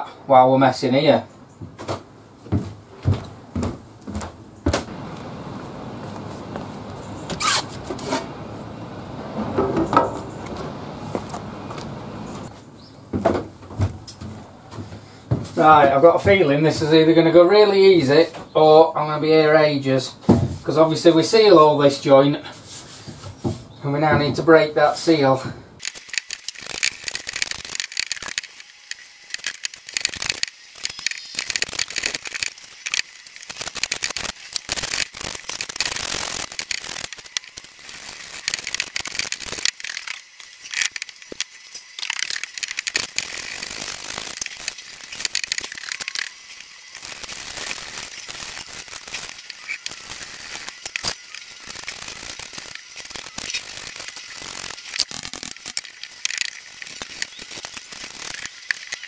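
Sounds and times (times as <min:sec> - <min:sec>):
metal flue pipe grating and clicking: 0:25.8 - 0:59.0.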